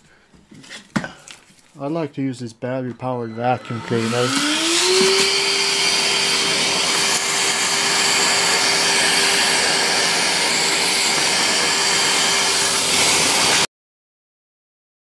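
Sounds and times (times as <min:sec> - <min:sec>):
vacuum cleaner running: 0:02.9 - 0:13.7.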